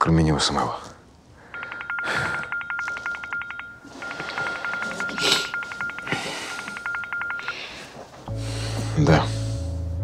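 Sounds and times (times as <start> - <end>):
phone ringtone trilling: 1.4 - 7.9.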